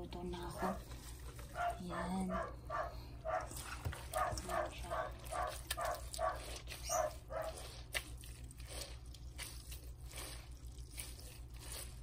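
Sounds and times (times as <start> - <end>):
wet vegetable squelching by hand: 3.2 - 12.0.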